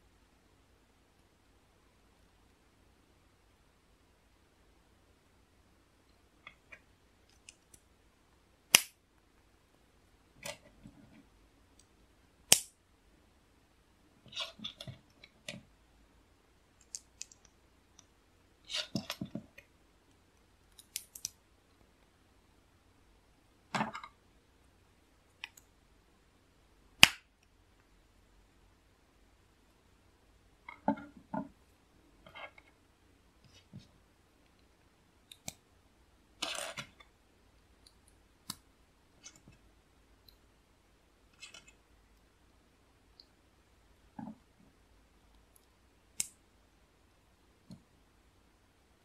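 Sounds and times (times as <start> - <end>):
plastic bricks snapping together: 8.7 - 9.0, 12.5 - 12.7, 27.0 - 27.3.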